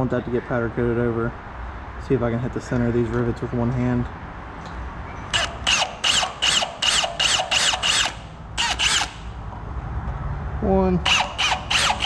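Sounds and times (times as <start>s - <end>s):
drill bit squealing against metal: 5.1s - 9.4s, 11.0s - 12.0s.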